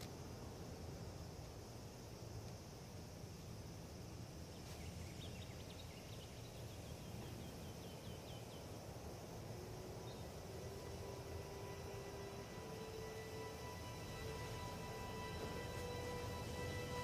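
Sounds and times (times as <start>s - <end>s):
faint wind rumble: 0.0s - 17.0s
small bird chirping: 4.5s - 8.8s.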